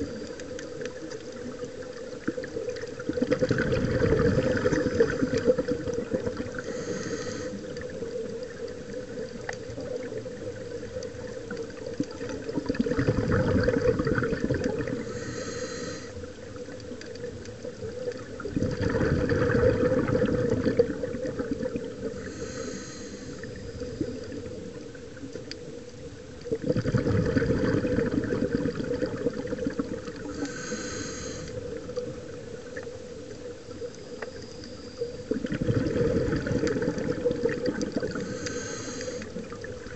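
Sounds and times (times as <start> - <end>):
exhaled bubbles gurgling underwater: 0.0 - 39.9
regulator inhalation hiss: 6.6 - 7.7, 15.0 - 16.3, 22.1 - 24.3, 30.3 - 31.7, 38.1 - 39.6.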